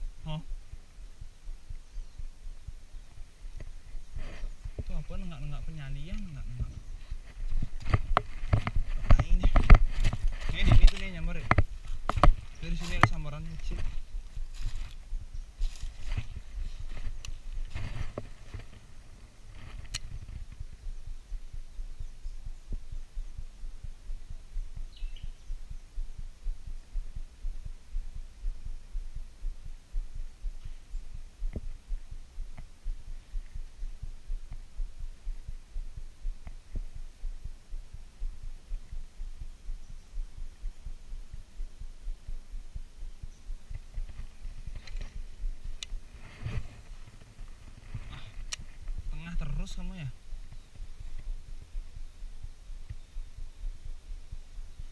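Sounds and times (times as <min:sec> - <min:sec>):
low thumping rumble: 0:00.0 - 0:54.9
faint clicks: 0:43.5 - 0:46.0.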